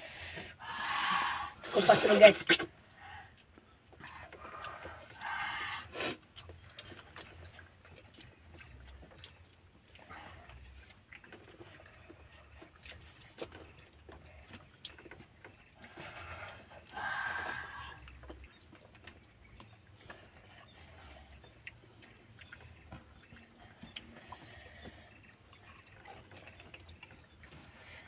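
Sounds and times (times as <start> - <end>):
chewing and wet smacking: 0.3 - 28.0.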